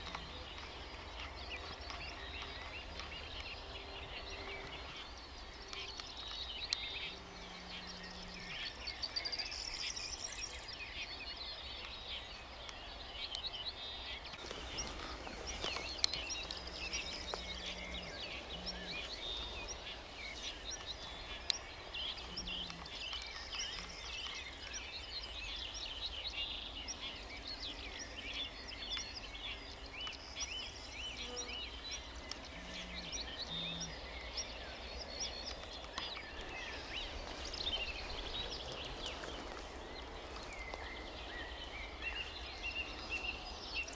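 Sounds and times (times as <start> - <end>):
songbirds chirping and trilling: 0.0 - 43.9.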